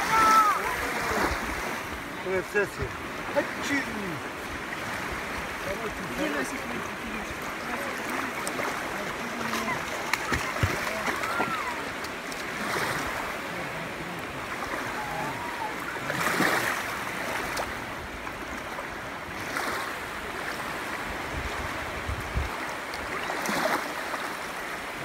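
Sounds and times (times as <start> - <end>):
small waves lapping at shore: 0.0 - 25.0.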